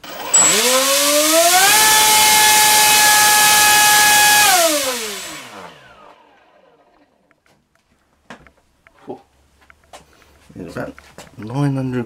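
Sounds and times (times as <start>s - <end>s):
electric motor propeller whine: 0.0s - 7.2s.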